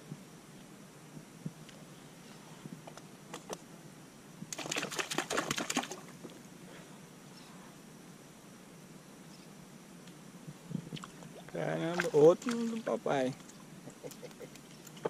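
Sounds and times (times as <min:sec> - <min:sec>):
fish splashing at water surface: 0:04.5 - 0:06.1, 0:11.9 - 0:13.6.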